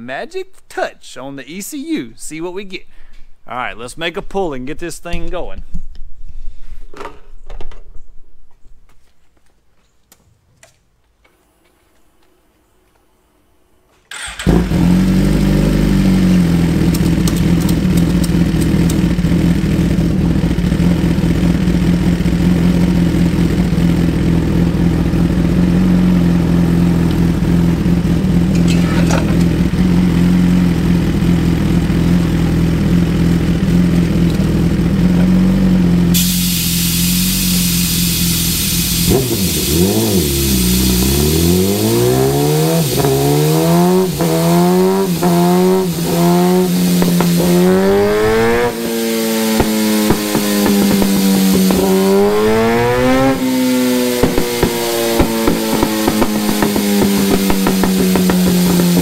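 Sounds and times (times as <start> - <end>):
motorcycle engine idling and revving: 14.1 - 59.0
steady hiss: 36.2 - 41.8, 42.5 - 47.7.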